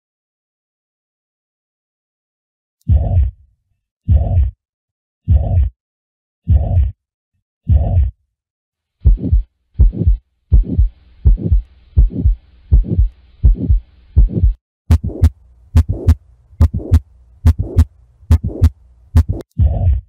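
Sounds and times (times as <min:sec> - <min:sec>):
faint heart murmur: 0:02.9 - 0:03.3, 0:04.1 - 0:04.6, 0:05.3 - 0:05.7, 0:06.5 - 0:07.0, 0:07.7 - 0:08.1, 0:09.0 - 0:20.0
heartbeat: 0:02.9 - 0:03.4, 0:04.1 - 0:04.6, 0:05.3 - 0:05.8, 0:06.5 - 0:07.0, 0:07.7 - 0:08.2, 0:09.0 - 0:20.0
sharp heart valve clicks: 0:14.4 - 0:19.4.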